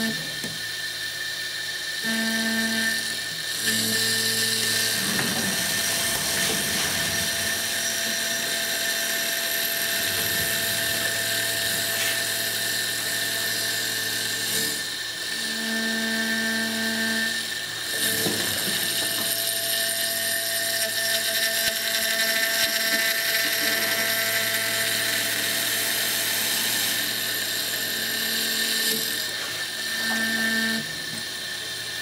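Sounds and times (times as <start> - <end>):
mill spindle high whine: 0.0 - 32.0.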